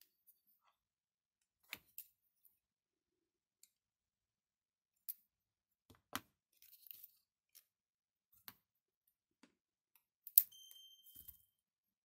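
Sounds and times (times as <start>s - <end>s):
brief high steady tone: 10.5s - 11.4s.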